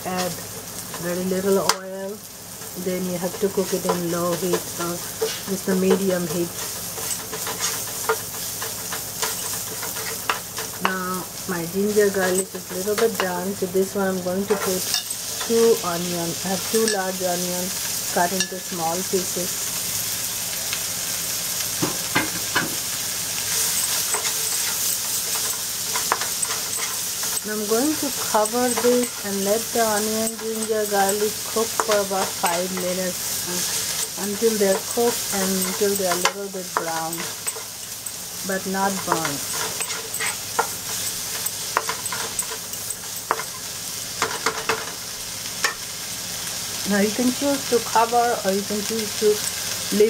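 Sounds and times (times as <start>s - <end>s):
onions sizzling in oil: 0.0s - 50.0s
wooden spatula scraping wok: 2.6s - 10.9s, 23.4s - 45.0s
spatula tapping a pan: 39.0s - 43.6s.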